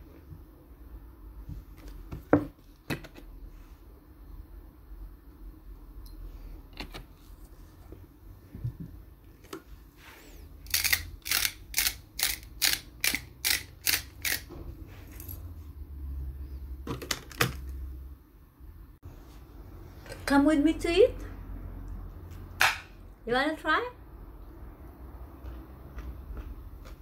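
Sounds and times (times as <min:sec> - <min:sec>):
grinder clicks: 0:10.7 - 0:14.5
salt grinder crunching: 0:10.7 - 0:14.5.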